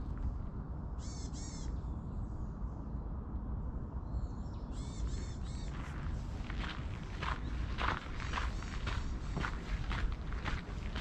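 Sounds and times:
steady low rumble: 0.0 - 11.0.

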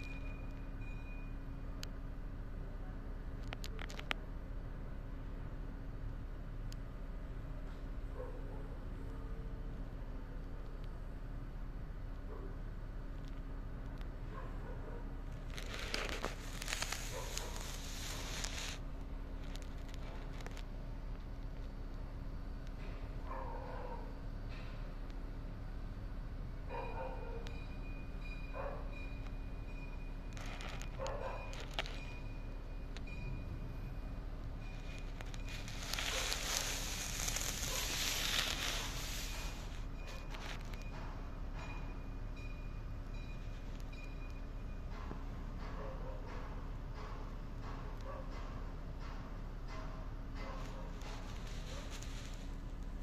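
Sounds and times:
steady low hum: 0.0 - 53.0
crinkling crackly rustle: 3.4 - 4.2, 15.2 - 22.0, 30.3 - 33.1, 34.4 - 41.2, 50.6 - 53.0.

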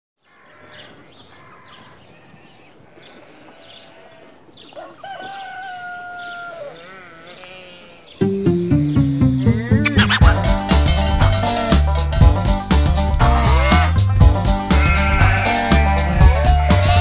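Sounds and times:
sheep or goat bleating: 0.3 - 4.4, 5.6 - 8.2, 13.2 - 17.0.

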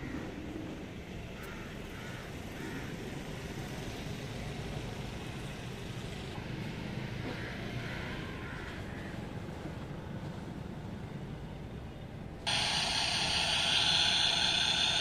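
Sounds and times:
faint hiss: 12.5 - 15.0.

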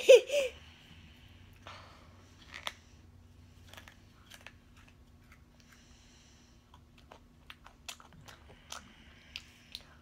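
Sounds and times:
girl laughing: 0.0 - 0.6.

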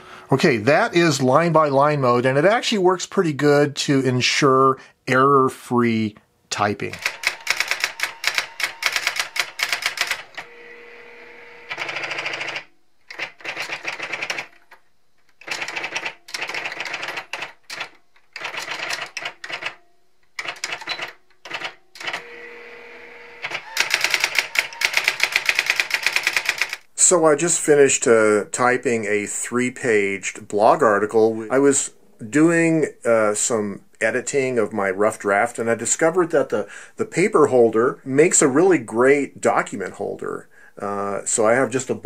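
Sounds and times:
electronic typewriter print strikes: 6.9 - 10.5, 11.7 - 14.5, 20.4 - 22.3, 23.4 - 26.8.

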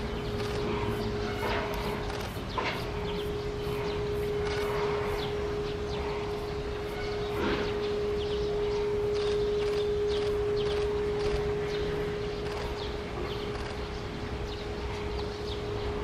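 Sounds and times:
outdoor background noise: 0.0 - 16.0
steady hum on one tone: 0.0 - 16.0.

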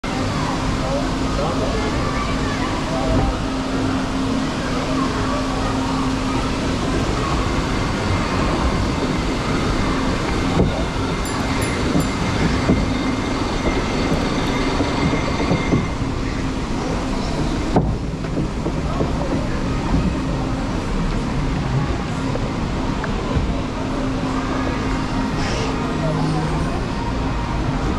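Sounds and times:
moving water and ride machinery: 0.0 - 27.9
boat knocking against channel: 10.5 - 16.0, 17.3 - 20.3.

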